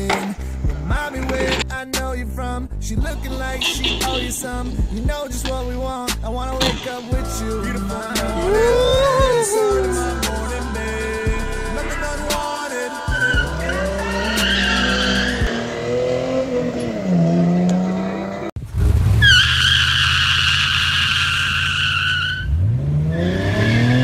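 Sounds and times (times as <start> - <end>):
car engine revving: 3.0 - 24.0
tyre squeal: 3.4 - 4.7, 13.1 - 15.7, 19.2 - 24.0.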